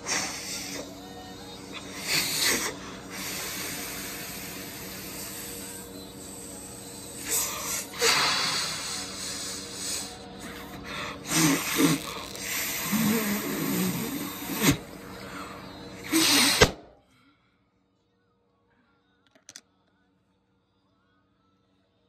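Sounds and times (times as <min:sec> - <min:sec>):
person blowing into balloon: 0:00.0 - 0:00.9, 0:01.7 - 0:14.9, 0:16.0 - 0:16.8
balloon bursting pop: 0:16.3 - 0:16.9.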